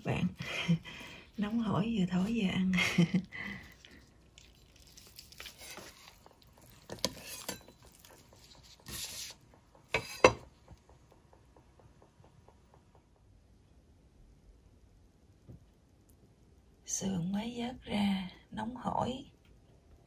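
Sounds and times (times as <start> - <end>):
knife knocking on ceramic plate: 9.9 - 10.5.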